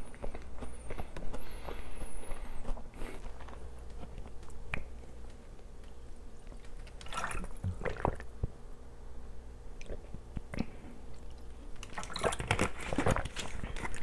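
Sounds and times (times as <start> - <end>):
person gulping water: 7.0 - 8.3.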